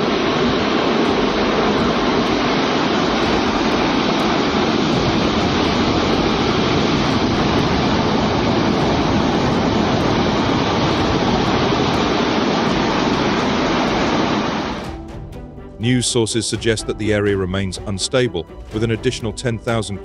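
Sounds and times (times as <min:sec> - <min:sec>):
rockfall rumble: 0:00.0 - 0:14.8.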